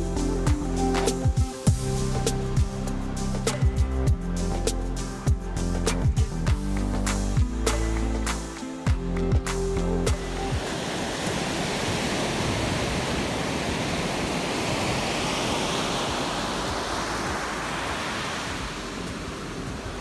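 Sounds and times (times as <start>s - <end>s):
ocean surf breaking: 10.3s - 20.0s.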